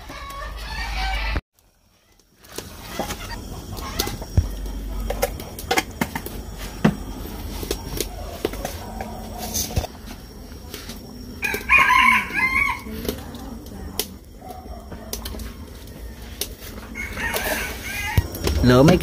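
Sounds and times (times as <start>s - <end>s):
rooster crowing: 0.0s - 1.4s, 11.3s - 13.0s, 16.1s - 18.4s.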